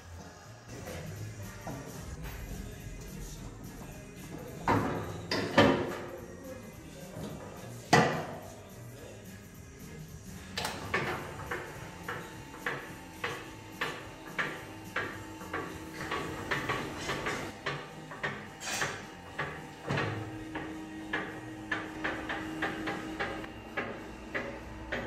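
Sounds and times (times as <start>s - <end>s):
steady machine hum: 9.5s - 25.0s.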